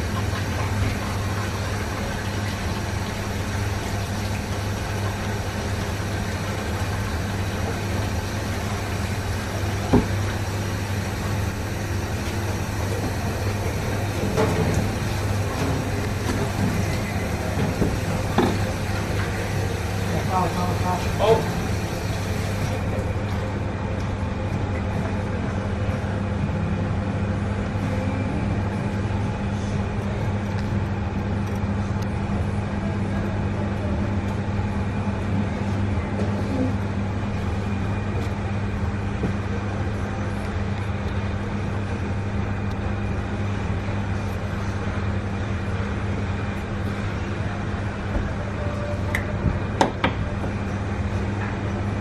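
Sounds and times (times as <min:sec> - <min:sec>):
kitchen equipment humming: 0:00.0 - 0:52.0.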